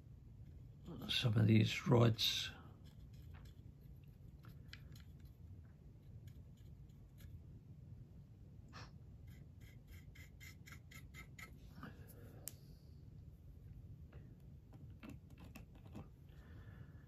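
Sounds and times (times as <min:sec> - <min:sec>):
paintbrush scratching on plastic: 0:02.2 - 0:07.4, 0:09.2 - 0:11.6.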